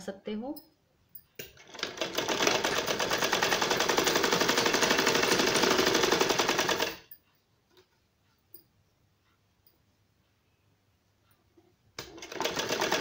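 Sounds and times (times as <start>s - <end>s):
sewing machine clattering: 1.4s - 7.1s, 12.0s - 13.0s.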